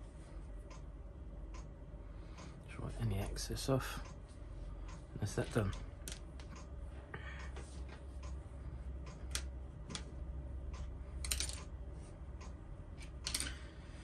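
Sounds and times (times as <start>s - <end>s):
low steady hum: 0.0s - 14.0s
plastic parts clicking and tapping: 5.5s - 6.6s.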